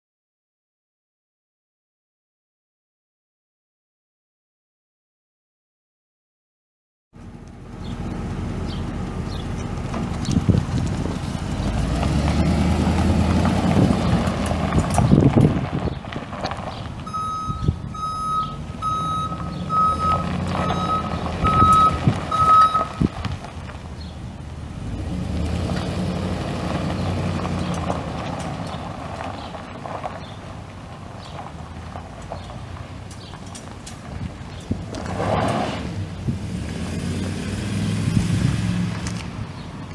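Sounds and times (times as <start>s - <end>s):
truck engine running: 7.2s - 35.2s
backup alarm beeping: 17.1s - 23.1s.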